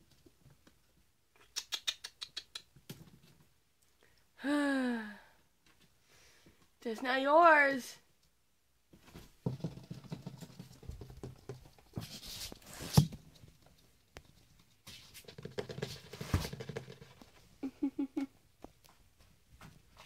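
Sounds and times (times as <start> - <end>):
knock: 9.4 - 10.4.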